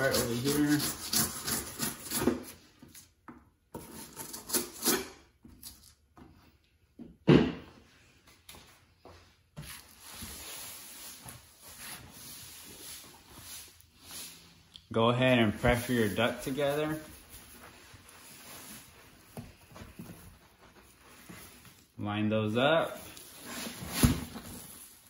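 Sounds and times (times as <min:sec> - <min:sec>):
knife rasping through board: 0:00.0 - 0:02.6, 0:03.8 - 0:05.2.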